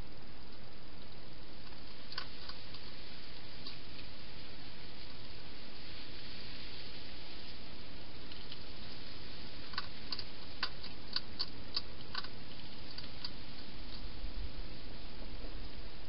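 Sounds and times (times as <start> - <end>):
steady hiss: 0.0 - 16.0
hedgehog chewing clicks: 0.5 - 2.9, 9.6 - 14.1.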